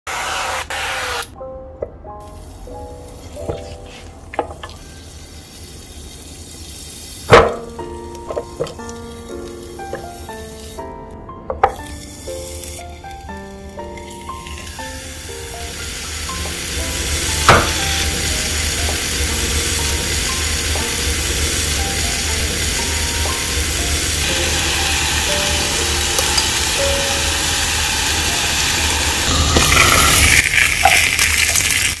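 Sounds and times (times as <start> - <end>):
food sizzling in waffle maker: 14.1 - 32.0.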